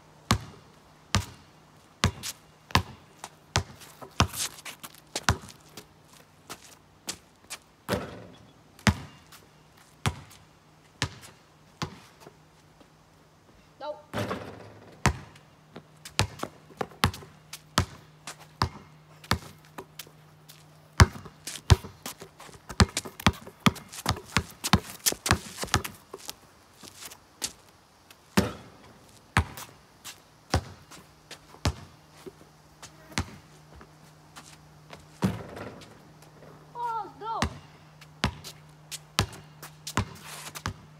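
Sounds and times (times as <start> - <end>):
basketball bouncing on pavement: 0.3 - 1.4, 2.0 - 9.4, 10.0 - 10.4, 11.0 - 12.0, 14.1 - 27.6, 28.3 - 33.9, 34.9 - 36.0, 36.8 - 40.9.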